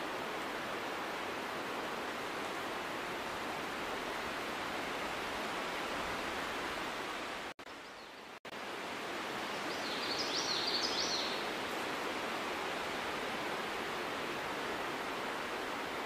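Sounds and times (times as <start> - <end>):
outdoor background hiss: 0.0 - 16.0
bird chirping: 9.7 - 11.4.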